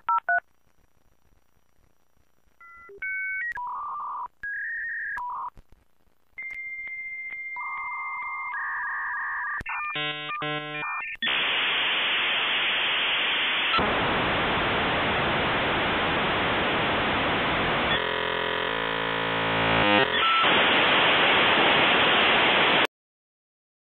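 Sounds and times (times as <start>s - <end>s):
modem buzzing layered tones: 7.5s - 22.7s
dial-up modem hissing: 11.2s - 14.4s, 15.1s - 22.9s.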